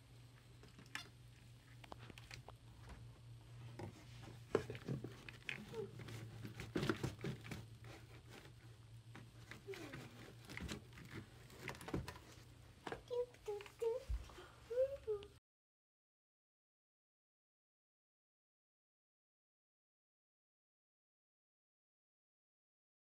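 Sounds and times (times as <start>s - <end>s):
toys rustling and crinkling: 3.7s - 14.5s.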